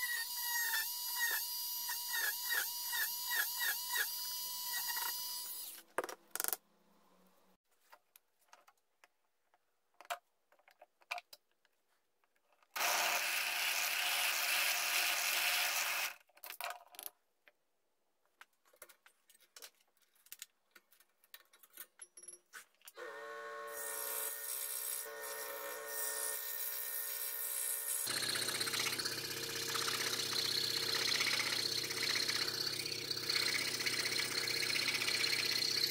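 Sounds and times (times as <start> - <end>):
drill press boring wood: 0.0 - 5.8, 23.0 - 35.9
scroll saw motor hum: 28.0 - 35.9.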